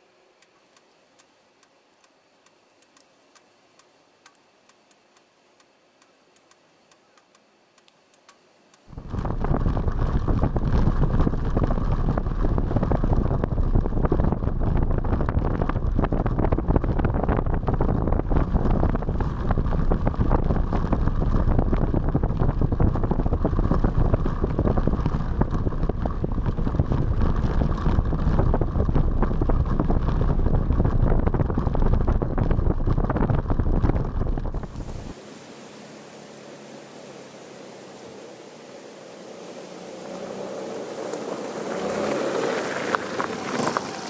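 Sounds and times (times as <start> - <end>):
scooter engine: 8.9 - 35.2, 35.8 - 44.0
wind rushing over microphone: 8.9 - 44.0.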